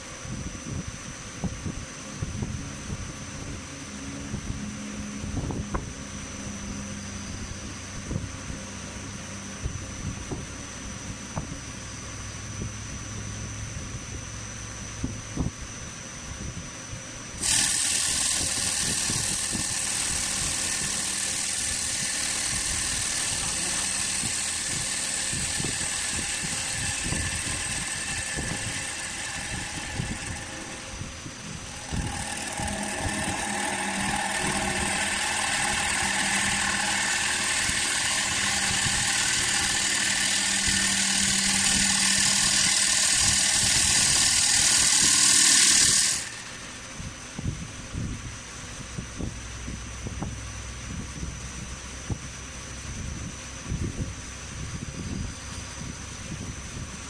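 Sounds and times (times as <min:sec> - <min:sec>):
lathe cutting wood hiss: 0:17.4 - 0:47.0.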